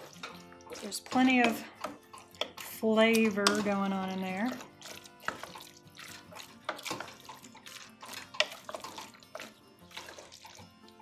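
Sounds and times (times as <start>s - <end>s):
spoon tapping pot: 0.0s - 5.7s, 6.4s - 7.5s, 8.1s - 9.6s
faint background music: 0.0s - 11.0s
wooden spoon stirring wet mix: 0.0s - 11.0s.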